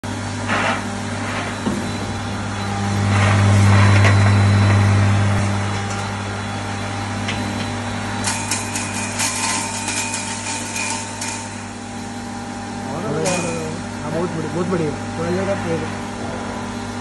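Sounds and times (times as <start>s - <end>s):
electric motor humming: 0.1s - 17.0s
nuts crackling in grinder: 8.2s - 11.5s.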